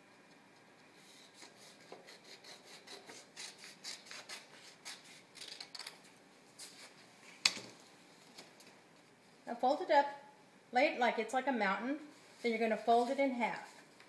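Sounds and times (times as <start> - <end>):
scissors cutting paper: 1.3 - 5.2.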